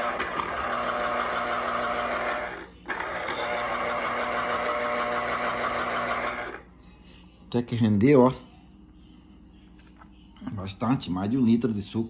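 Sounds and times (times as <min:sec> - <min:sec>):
electric juicer motor running: 0:00.0 - 0:06.6.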